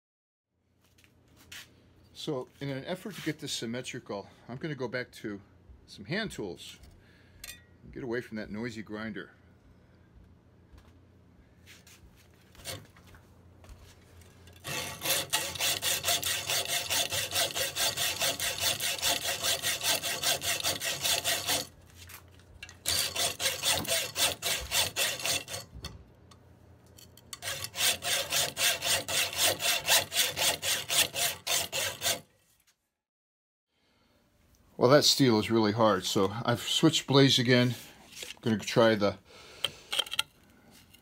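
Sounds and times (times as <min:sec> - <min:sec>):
hacksaw cutting steel: 0:12.6 - 0:12.9, 0:14.5 - 0:21.7, 0:22.6 - 0:25.8, 0:27.3 - 0:32.3.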